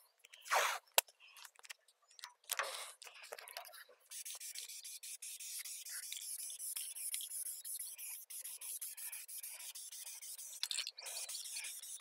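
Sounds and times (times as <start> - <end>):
aerosol spray can hissing: 4.1 - 10.6, 11.2 - 12.0.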